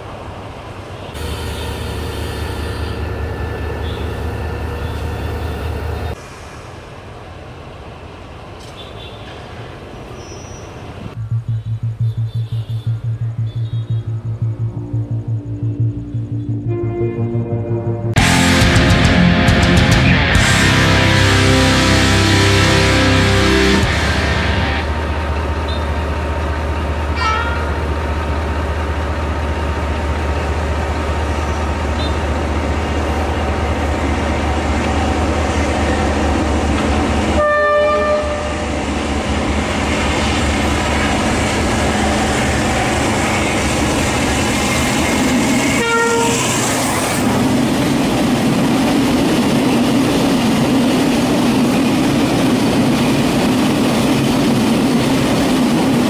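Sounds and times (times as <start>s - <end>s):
diesel locomotive engine running: 0.0s - 8.7s, 10.5s - 56.0s
locomotive horn toots: 1.2s - 5.5s, 20.5s - 24.8s, 27.2s - 27.8s, 37.3s - 38.7s, 45.6s - 46.7s.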